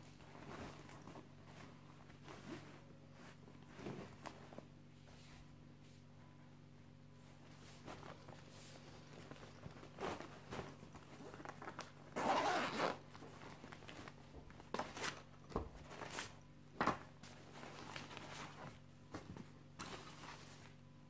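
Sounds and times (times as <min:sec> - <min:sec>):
bag clicks and rustles: 0:07.8 - 0:20.4
zipper pulled open: 0:12.1 - 0:13.0.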